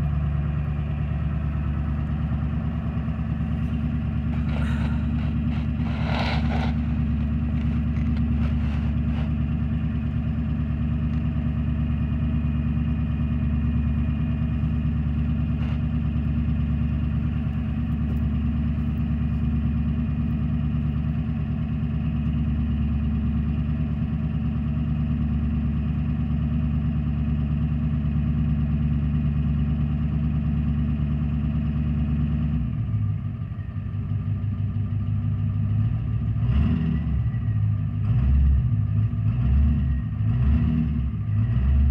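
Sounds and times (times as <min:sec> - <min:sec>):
diesel engine idling: 0:00.0 - 0:41.9.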